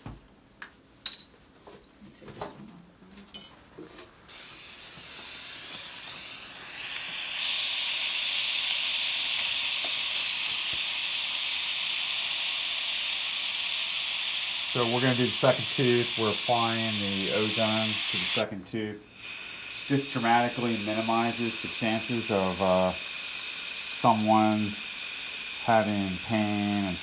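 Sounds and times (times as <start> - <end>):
high hiss of rushing air: 19.1 - 27.0.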